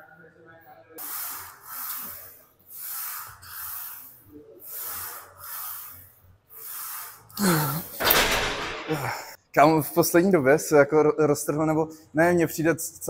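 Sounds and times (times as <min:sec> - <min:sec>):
man breathing hard and hissing: 0:01.0 - 0:08.0.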